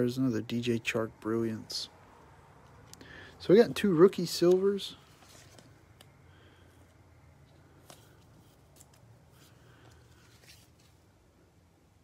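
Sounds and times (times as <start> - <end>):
low room hum: 0.0 - 12.0
card and plastic sleeve rustling: 4.2 - 6.2, 6.8 - 11.2.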